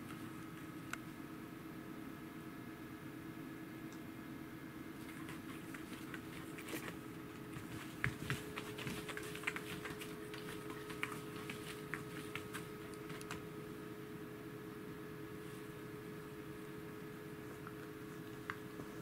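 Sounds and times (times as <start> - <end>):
faint steady hum: 0.0 - 19.0
paws scratching on floor mat: 5.0 - 13.6, 17.3 - 19.0.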